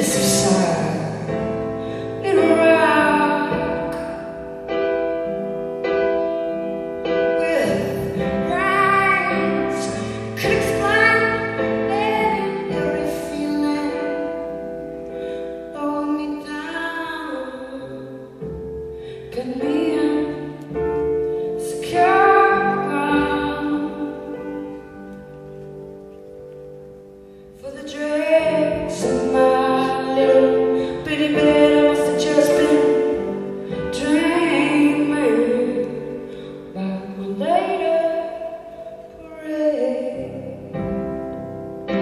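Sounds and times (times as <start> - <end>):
piano chords: 0.0 - 42.0
woman singing slow ballad: 2.2 - 4.2, 7.3 - 14.5, 15.7 - 18.3, 19.2 - 20.8, 21.6 - 24.4, 27.6 - 40.8.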